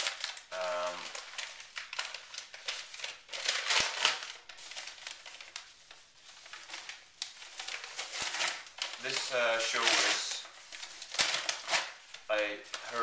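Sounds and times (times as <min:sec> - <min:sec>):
paper envelope crinkling: 0:00.0 - 0:13.0.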